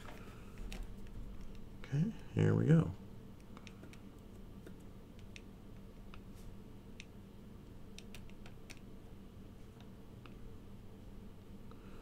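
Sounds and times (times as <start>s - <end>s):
low steady hum: 0.0s - 12.0s
faint irregular clicks: 0.1s - 1.7s, 3.4s - 6.3s, 6.9s - 8.9s.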